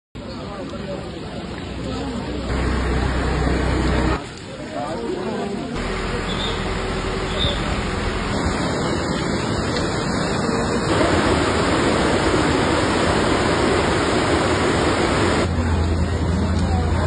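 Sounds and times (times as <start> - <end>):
river rushing: 5.8 - 15.5.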